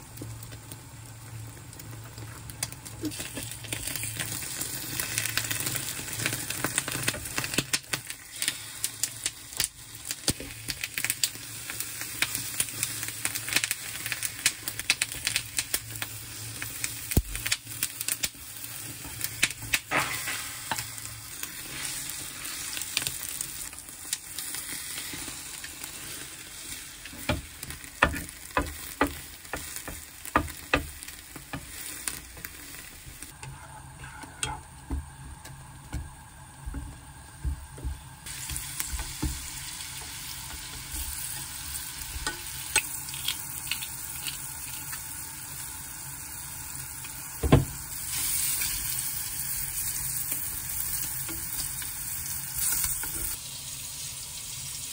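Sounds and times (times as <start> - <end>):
egg sizzling in a pan: 0.0 - 54.9
chopsticks tapping and scraping pan: 27.1 - 32.5, 33.4 - 35.0.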